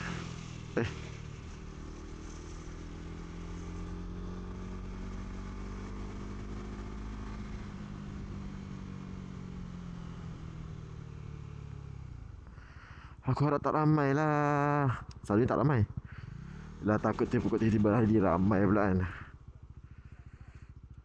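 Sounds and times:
motorcycle engine running: 0.0s - 13.3s, 14.4s - 21.0s.

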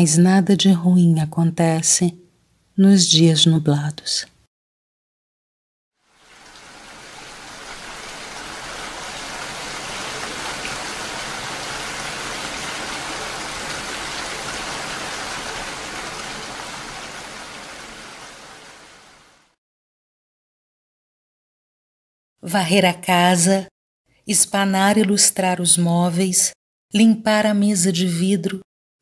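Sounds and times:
steady rain falling: 6.0s - 19.6s.

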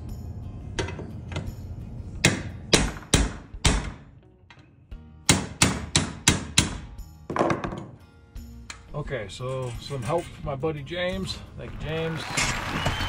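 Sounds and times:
hammer striking chisel on metal: 2.2s - 4.0s, 5.3s - 6.9s.

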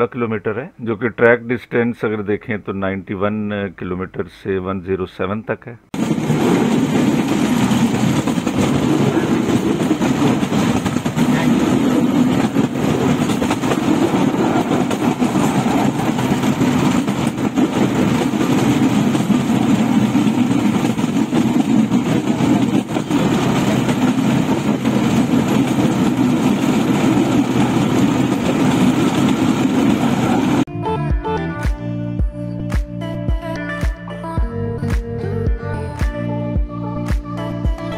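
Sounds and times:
motor trolley engine: 6.0s - 30.7s
steel wheels rolling on rails: 6.0s - 30.7s.

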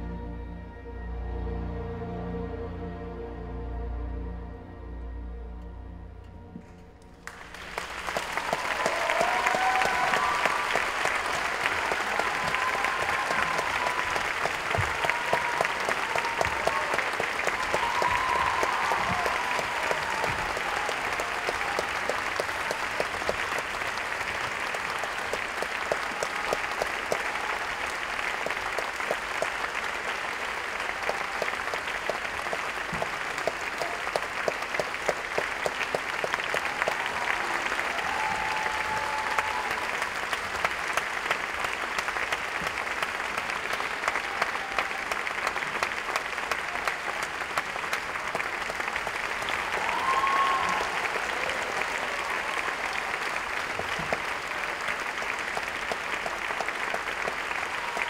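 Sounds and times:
audience applauding: 7.2s - 58.0s.

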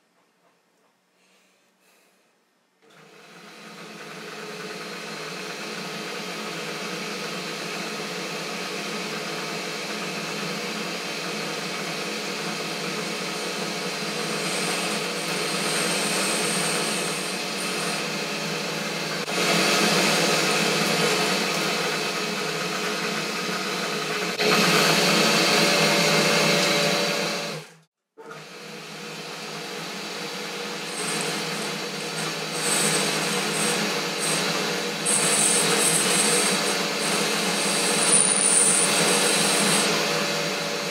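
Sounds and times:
metal lathe cutting: 3.3s - 27.7s, 28.3s - 40.9s
motor and gear hum: 30.6s - 40.9s.

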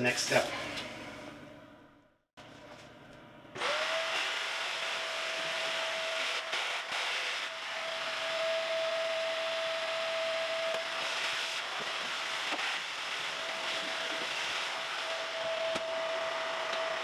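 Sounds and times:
vacuum cleaner running: 3.6s - 17.0s.

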